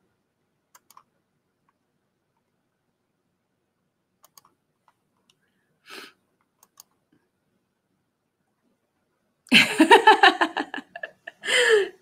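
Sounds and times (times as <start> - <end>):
faint clicks: 0.7 - 1.8, 4.2 - 5.4
short breath: 5.4 - 6.2, 11.4 - 12.0
woman laughing loudly: 9.5 - 12.0.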